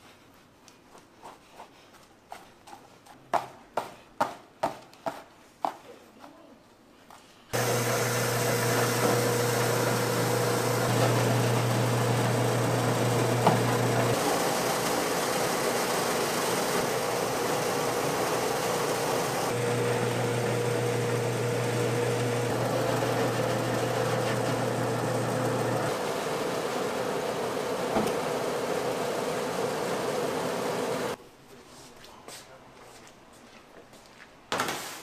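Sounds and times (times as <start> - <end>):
milling machine motor whirring: 7.6 - 31.2.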